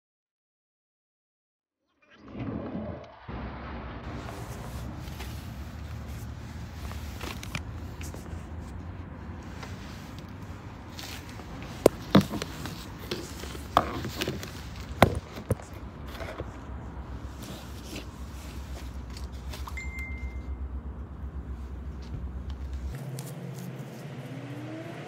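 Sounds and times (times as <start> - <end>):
low steady hum: 15.7 - 24.6.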